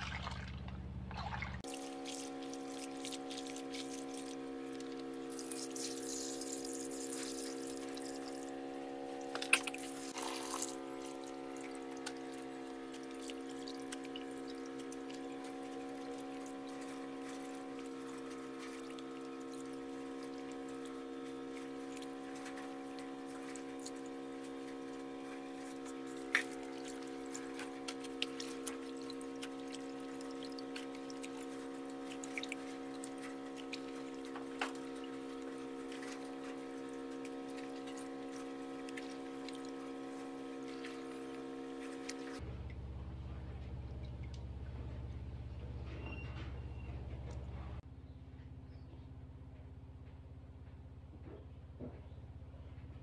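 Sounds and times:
water splashing and dripping: 0:00.0 - 0:08.5, 0:09.4 - 0:42.8
steady droning hum: 0:00.0 - 0:50.8.

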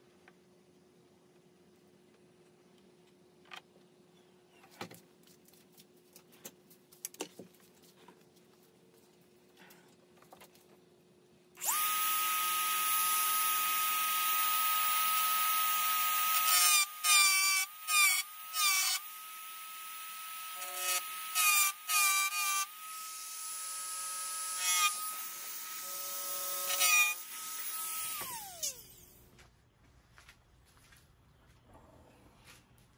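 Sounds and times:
rotary tool grinding metal: 0:11.6 - 0:19.2.

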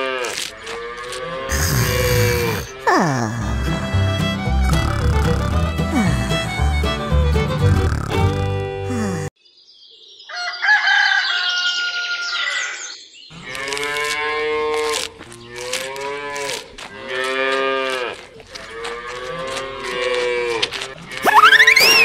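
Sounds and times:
rooster crowing: 0:10.3 - 0:12.8
cows mooing: 0:13.4 - 0:22.0.

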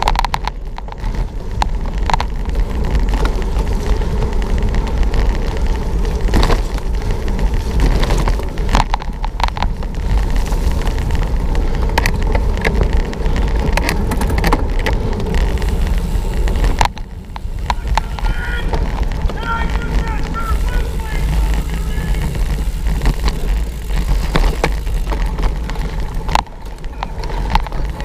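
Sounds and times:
bike rattling over bumps: 0:00.0 - 0:28.0
tyre rumble: 0:00.0 - 0:28.0
wind on microphone: 0:00.0 - 0:28.0.

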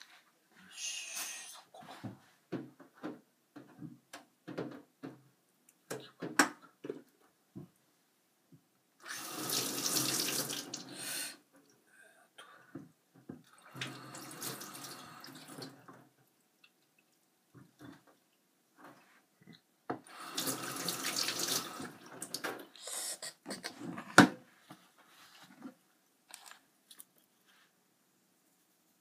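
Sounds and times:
tap water running into sink: 0:09.1 - 0:11.0, 0:13.6 - 0:16.0, 0:19.9 - 0:22.6.

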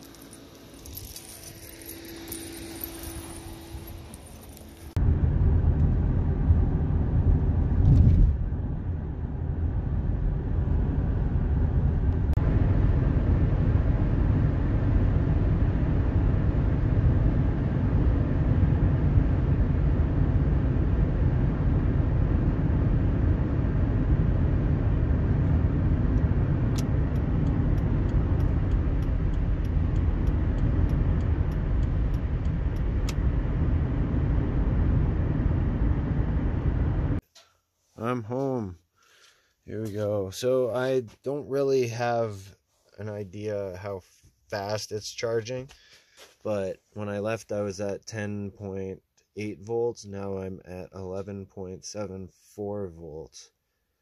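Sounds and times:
road and engine rumble: 0:00.0 - 0:37.2
faint regular ticking: 0:27.1 - 0:32.9.

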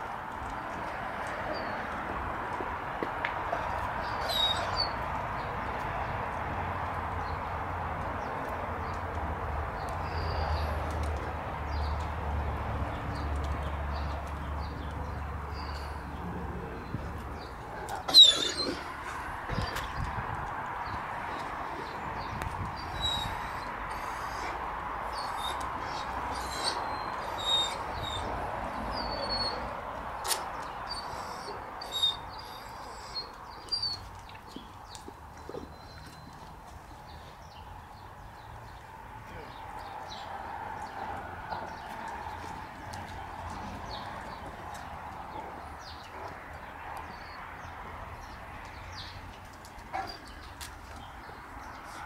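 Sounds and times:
dog claws clicking on pavers: 0:07.9 - 0:15.4, 0:30.0 - 0:30.9, 0:39.7 - 0:47.1, 0:47.8 - 0:51.9
small birds chirping: 0:30.2 - 0:52.0.

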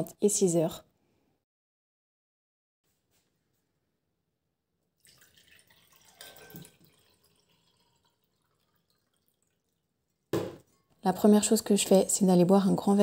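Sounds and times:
water pouring into a glass: 0:05.0 - 0:10.3.

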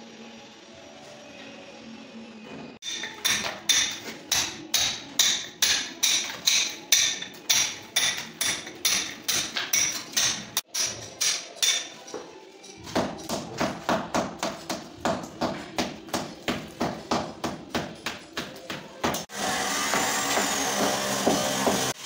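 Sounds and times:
hammer and chisel chipping plaster: 0:02.8 - 0:22.0.

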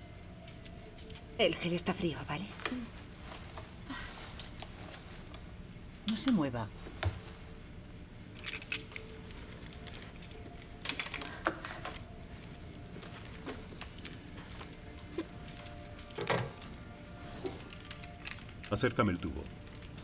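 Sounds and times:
metal instruments clinking: 0:08.3 - 0:13.2, 0:16.0 - 0:20.0.

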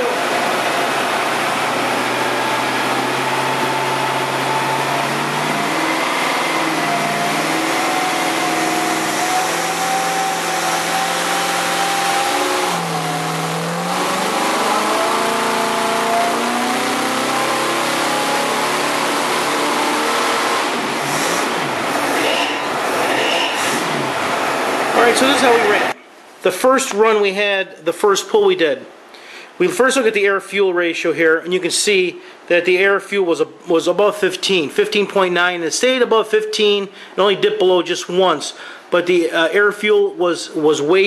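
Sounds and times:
engine running on dyno: 0:00.0 - 0:26.0.

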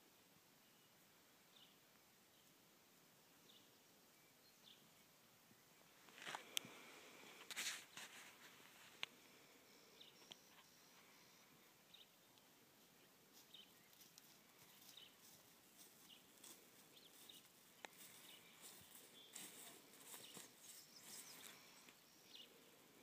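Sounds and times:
faint bird chirps: 0:09.1 - 0:23.0.

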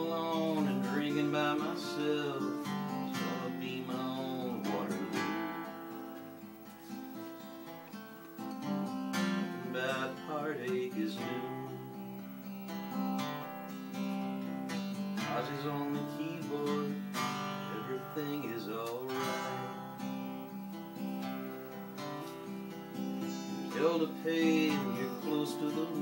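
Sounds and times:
man singing: 0:00.0 - 0:06.2, 0:09.2 - 0:12.3, 0:15.2 - 0:20.4, 0:23.2 - 0:26.0
acoustic guitar strumming: 0:00.0 - 0:26.0.

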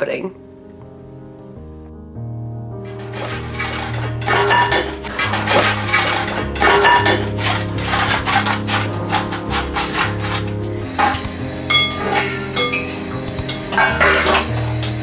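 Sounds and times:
background music with bass: 0:00.0 - 0:15.0
cutlery clinking in a drawer: 0:02.9 - 0:14.8.

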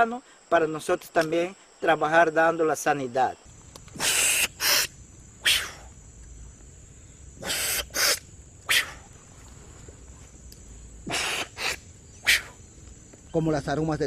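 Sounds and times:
person blowing hard through lips: 0:03.9 - 0:05.9, 0:07.4 - 0:09.1, 0:11.0 - 0:12.6.

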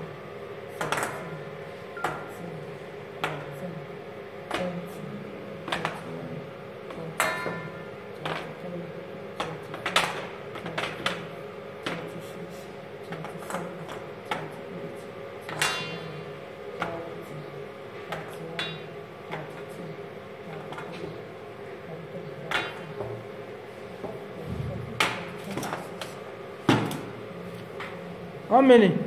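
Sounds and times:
ringing knock: 0:07.2 - 0:07.8.

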